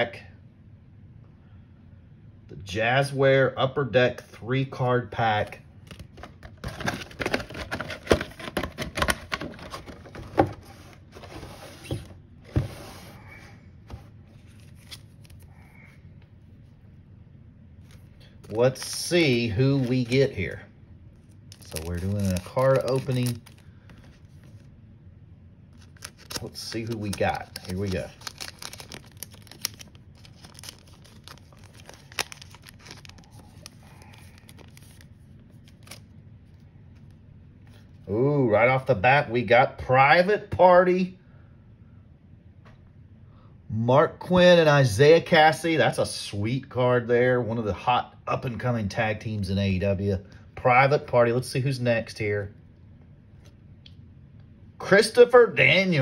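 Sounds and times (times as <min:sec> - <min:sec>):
foil wrapper crinkling: 0:21.5 - 0:24.6, 0:25.8 - 0:36.0
wrapper snapping: 0:25.8 - 0:35.0.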